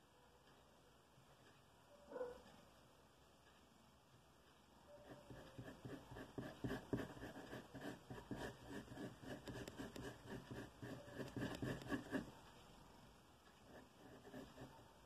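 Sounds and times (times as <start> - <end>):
pencil scratching on paper: 5.0 - 12.4, 13.6 - 14.9.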